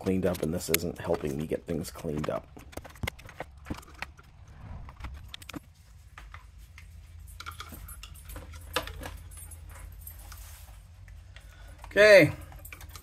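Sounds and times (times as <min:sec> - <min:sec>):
wires rustling and clinking: 0:05.0 - 0:13.0.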